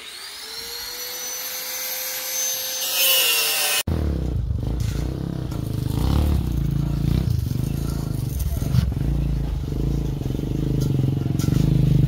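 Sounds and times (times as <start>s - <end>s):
power tool motor whine: 0.0s - 3.9s
rough cutting noise: 0.0s - 12.0s
low rumbling: 3.9s - 12.0s.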